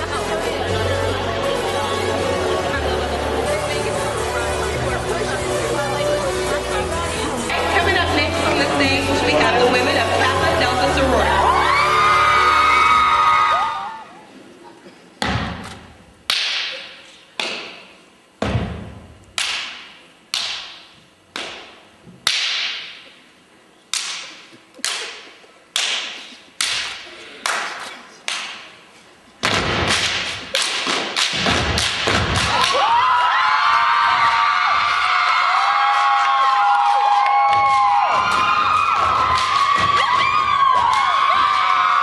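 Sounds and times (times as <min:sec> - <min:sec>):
crowd cheering: 0:09.3 - 0:14.3, 0:32.4 - 0:42.0
stomping and clapping in unison: 0:23.9 - 0:28.7, 0:29.4 - 0:33.0, 0:35.7 - 0:41.8.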